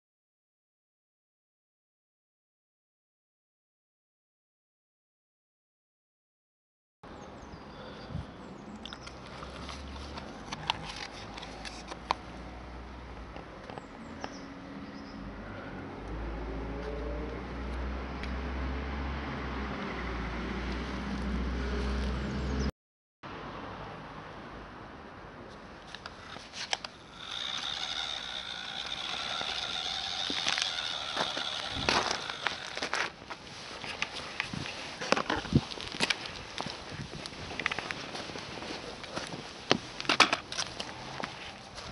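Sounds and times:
toy electric motor whining: 26.1s - 33.1s.

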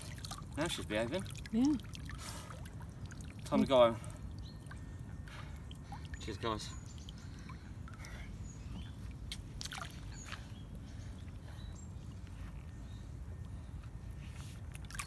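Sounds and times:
water splashing and dripping: 0.0s - 11.5s, 14.7s - 15.0s.

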